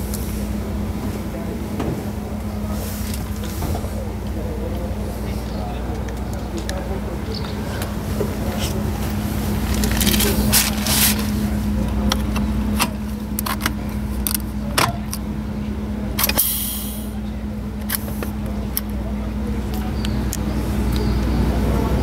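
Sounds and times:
steady low hum: 0.0s - 22.0s
air hiss: 16.3s - 17.2s.

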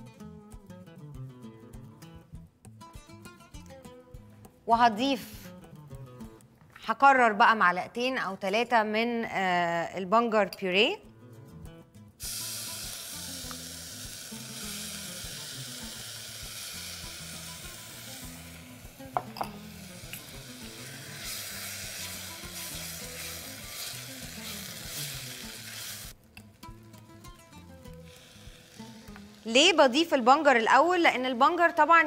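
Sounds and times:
rice sizzling in a pot: 12.2s - 30.9s.

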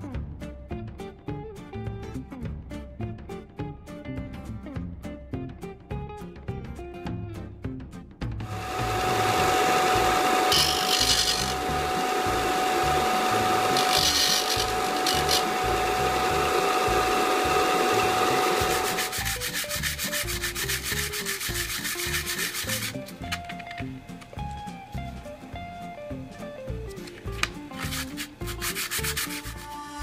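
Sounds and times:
disc sander whining: 8.5s - 19.7s
metal grinding on abrasive: 8.5s - 23.2s
hand sanding on sandpaper: 10.5s - 11.6s, 13.3s - 15.9s, 17.8s - 23.2s, 27.7s - 30.0s.

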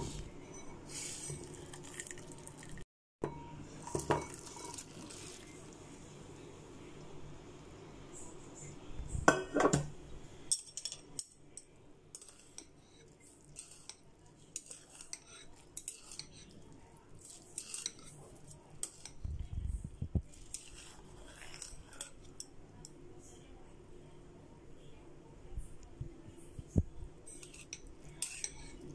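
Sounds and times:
chopsticks clinking against bowl: 27.3s - 28.9s.

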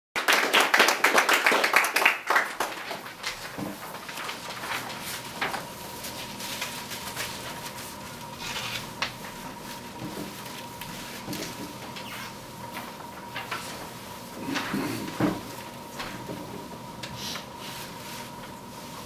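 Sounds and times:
audience applauding: 0.2s - 3.1s.

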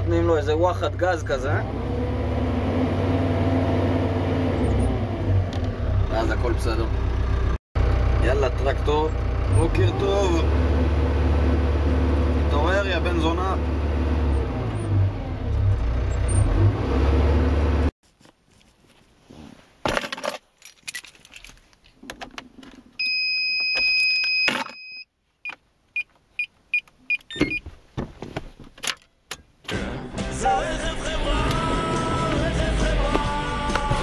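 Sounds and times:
short beeps: 23.0s - 27.6s.

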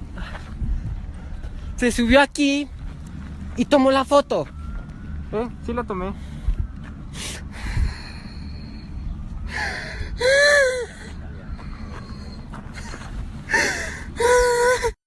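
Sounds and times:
low rumble: 0.0s - 14.7s
man sobbing in pain: 9.5s - 11.3s, 12.8s - 15.0s.

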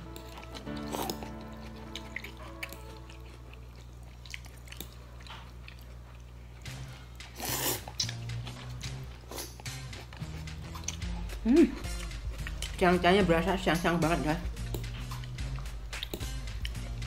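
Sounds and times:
quiet background music: 0.0s - 17.0s
chewing mouth sounds: 0.1s - 12.8s, 14.6s - 17.0s
slurping noodles: 7.4s - 8.1s.

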